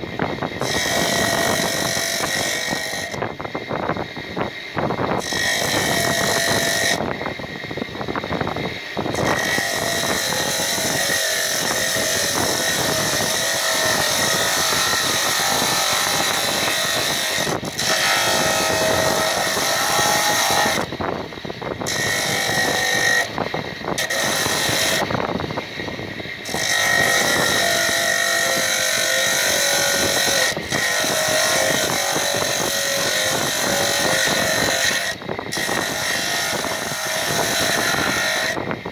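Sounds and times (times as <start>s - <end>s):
sanding disc grinding rock salt: 9.1s - 20.9s, 24.0s - 25.1s, 26.4s - 38.7s.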